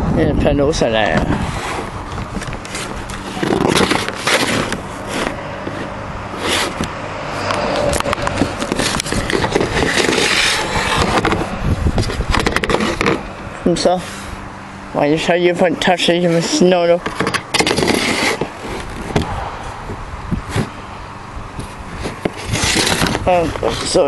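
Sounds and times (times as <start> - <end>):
camera handling scraping: 1.3 - 13.3, 16.4 - 19.3, 20.4 - 20.8, 21.6 - 24.0.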